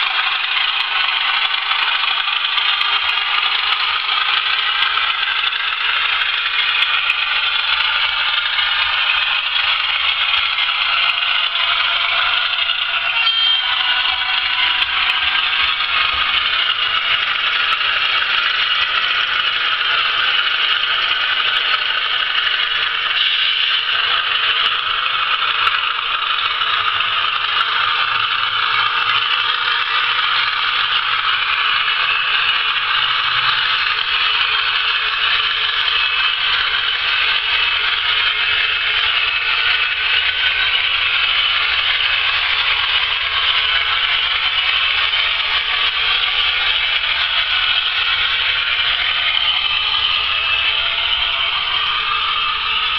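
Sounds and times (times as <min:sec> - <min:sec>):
diesel engine sound from small speaker: 0:00.0 - 0:52.9
model train rattling on track: 0:00.0 - 0:52.9.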